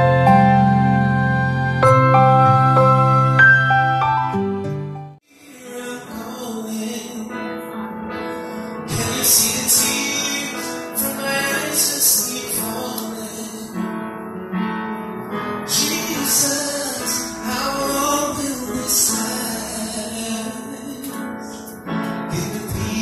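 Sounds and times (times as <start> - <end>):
keyboard accompaniment: 0.0 - 23.0
man singing into microphone: 5.3 - 14.0, 15.6 - 23.0.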